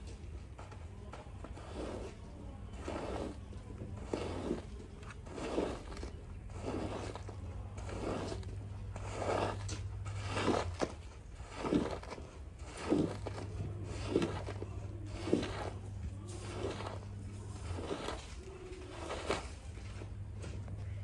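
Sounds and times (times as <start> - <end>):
steady low hum: 0.0 - 21.0
squeegee swishing through soapy water: 0.7 - 21.0.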